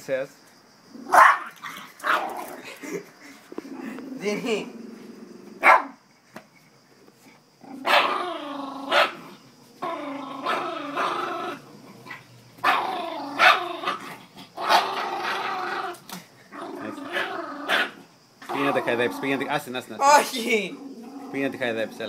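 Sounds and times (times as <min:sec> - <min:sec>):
small dog growling: 0:00.9 - 0:05.7, 0:07.2 - 0:19.7, 0:20.4 - 0:22.0.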